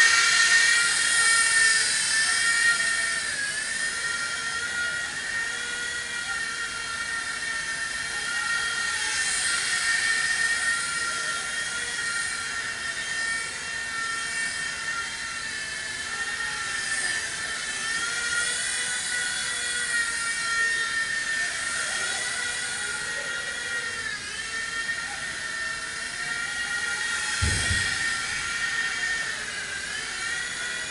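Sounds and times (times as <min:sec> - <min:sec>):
high-pitched whine of small motors: 0:00.0 - 0:30.9.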